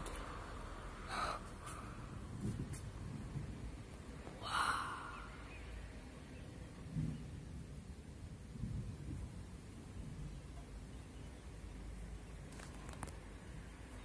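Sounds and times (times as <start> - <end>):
steady low rumble: 0.0 - 14.0
person sighing: 1.1 - 2.1, 4.4 - 5.3.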